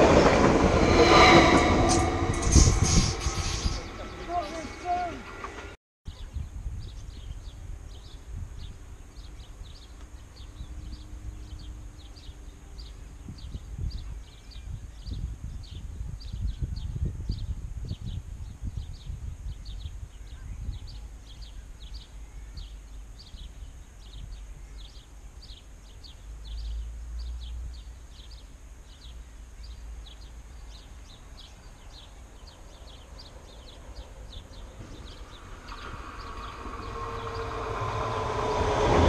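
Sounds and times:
low rumble: 0.0s - 5.8s, 33.9s - 39.0s
train hissing on rails: 0.0s - 5.8s, 34.5s - 39.0s.

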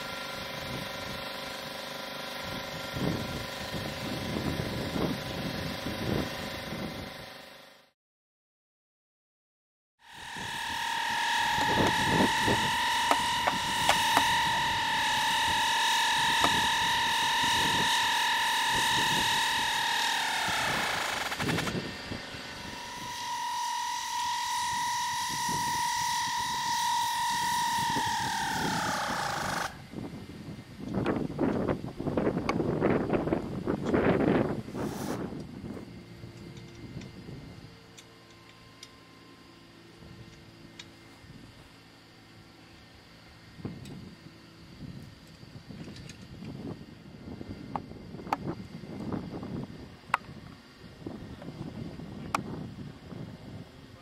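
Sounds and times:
high-pitched whine of spinning machine: 0.0s - 8.0s, 10.0s - 54.0s
steady hiss and tonal hum: 10.1s - 54.0s
wind buffeting microphone: 24.7s - 37.7s.

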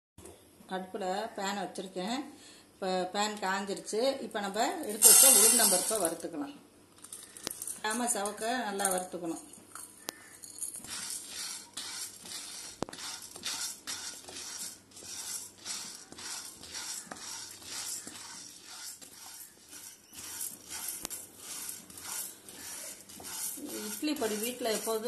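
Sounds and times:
lentils scraping in a frying pan: 4.9s - 6.2s, 10.2s - 25.0s.

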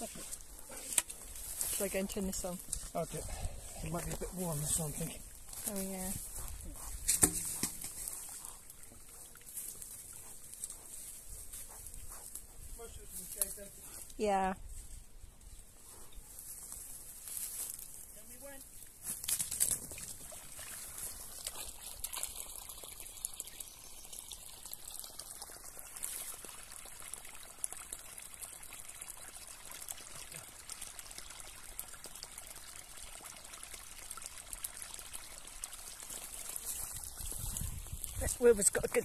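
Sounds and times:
water pouring from hose: 0.0s - 11.0s, 18.9s - 39.0s
water splashing in puddle: 18.9s - 23.5s.

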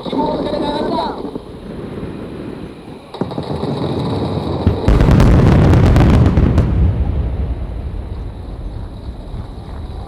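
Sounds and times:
firework shells bursting: 1.2s - 7.0s.

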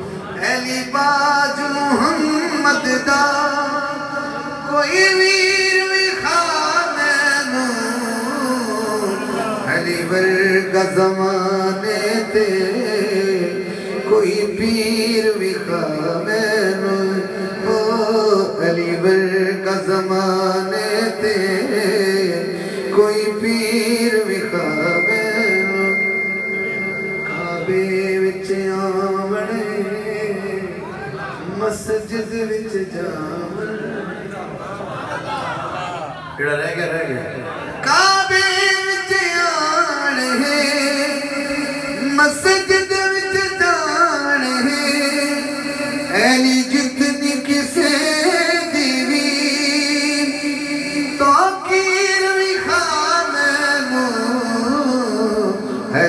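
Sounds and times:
man singing devotional song: 0.0s - 34.0s, 37.8s - 56.0s
thin steady high tone: 24.1s - 28.5s.

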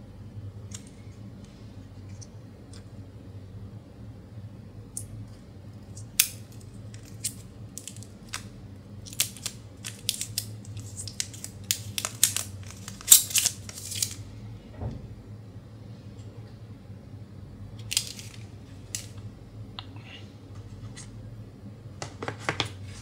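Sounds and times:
plastic wrap crackling: 6.9s - 14.2s.

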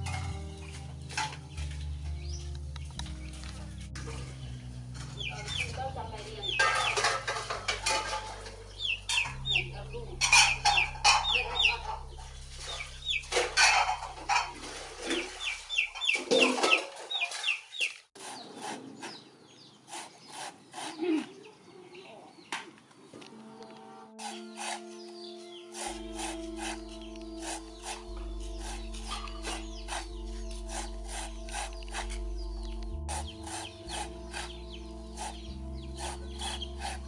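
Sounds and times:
machete cutting into coconut: 25.8s - 32.2s, 33.1s - 34.6s.

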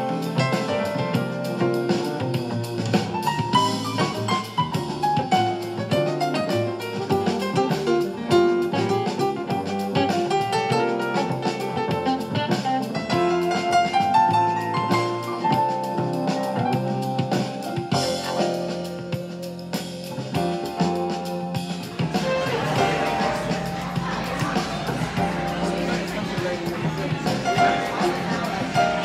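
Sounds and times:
drum kit steady beat: 0.0s - 29.0s
guitar: 0.0s - 29.0s.

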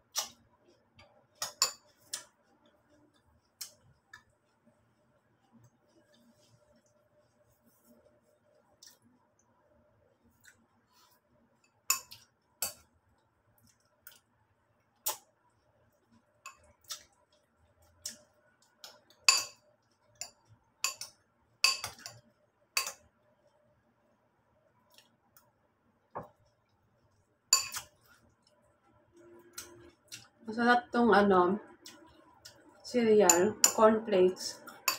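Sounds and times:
metal spoon clinking ceramic bowl: 19.3s - 19.6s, 20.2s - 22.2s, 27.6s - 27.9s, 33.3s - 33.9s, 34.7s - 34.9s.

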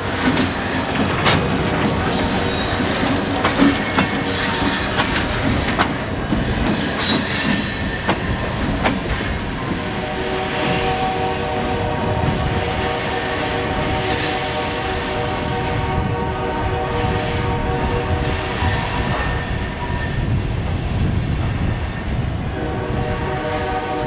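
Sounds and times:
train wheels clanking on rails: 0.0s - 11.2s
wheels squealing: 0.4s - 11.0s.

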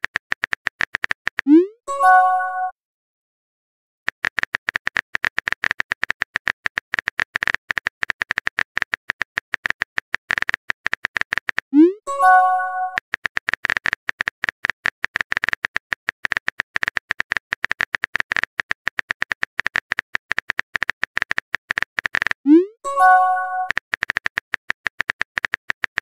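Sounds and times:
keyboard typing clicks: 4.1s - 26.0s.

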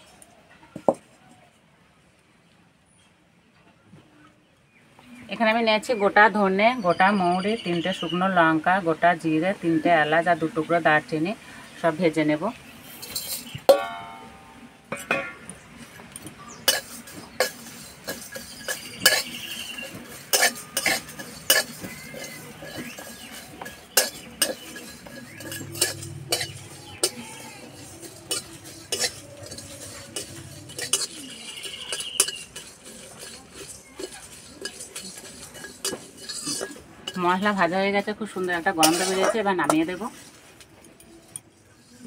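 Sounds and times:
spatula scraping wok: 11.5s - 42.0s
spices tipped into metal wok: 12.9s - 14.1s.

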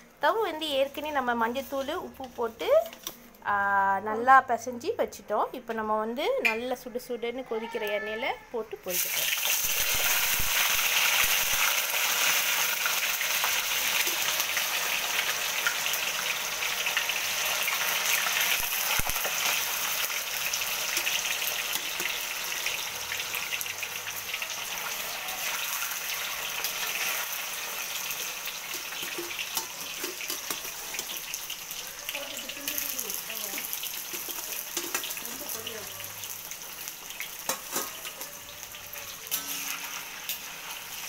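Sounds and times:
tofu sizzling in hot oil: 8.8s - 41.0s.

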